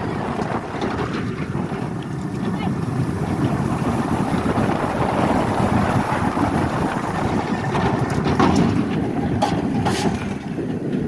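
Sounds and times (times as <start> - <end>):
roller coaster rumbling on track: 0.0 - 11.0
wind rushing over microphone: 0.0 - 11.0.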